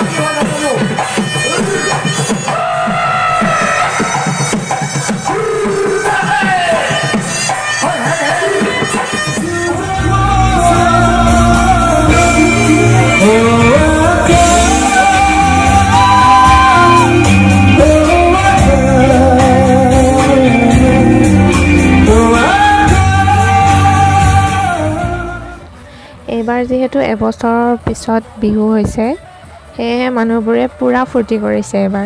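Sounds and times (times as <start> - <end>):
live band playing: 0.0 - 25.6
man singing: 5.2 - 25.8.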